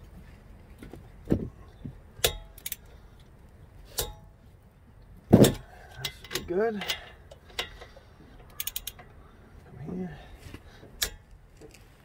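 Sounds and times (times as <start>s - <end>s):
wrench clicking on bolts: 2.2s - 2.9s, 5.4s - 9.2s.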